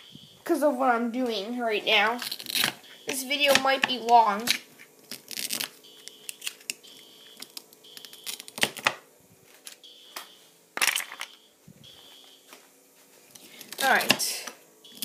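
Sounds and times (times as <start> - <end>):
fire alarm beeping: 0.0 - 0.6, 2.8 - 3.5, 5.8 - 8.6, 9.8 - 12.6.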